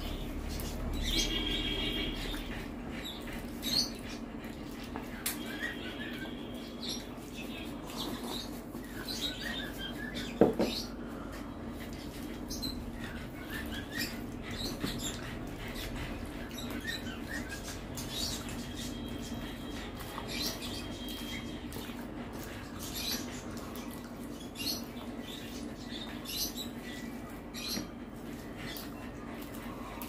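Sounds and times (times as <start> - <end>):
wet chewing: 11.0 - 26.1.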